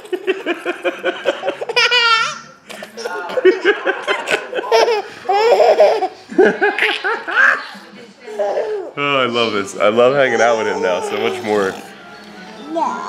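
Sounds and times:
baby laughing: 0.0s - 8.9s.

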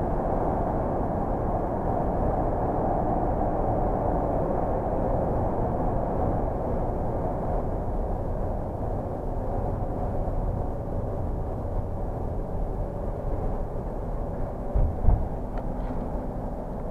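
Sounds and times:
engine and tyre rumble: 0.0s - 16.9s
thump: 14.8s - 15.3s.

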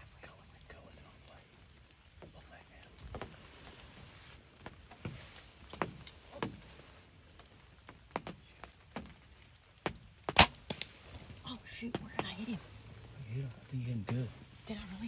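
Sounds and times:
bow string snap: 10.3s - 11.0s
faint ticks: 10.7s - 14.4s.

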